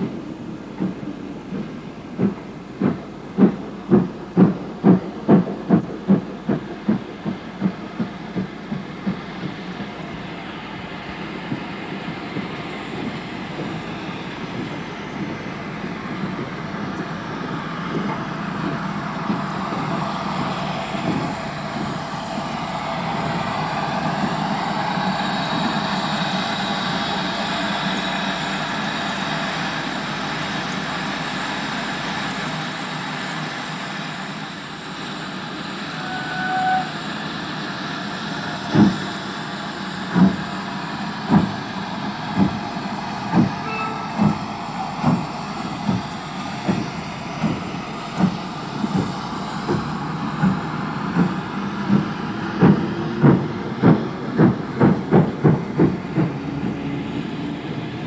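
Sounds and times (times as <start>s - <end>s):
steam hissing: 0.0s - 58.0s
steam locomotive exhaust chuffs: 0.0s - 58.0s
steam locomotive whistle: 35.7s - 37.3s, 43.6s - 44.5s.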